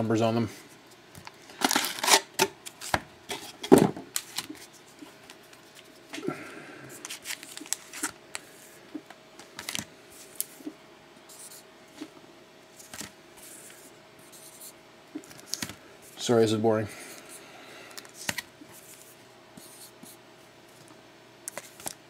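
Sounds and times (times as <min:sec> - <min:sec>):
card wrappers crinkling and tapping: 0:01.1 - 0:05.9, 0:07.0 - 0:10.5, 0:12.8 - 0:13.1, 0:15.2 - 0:15.8, 0:17.9 - 0:18.5.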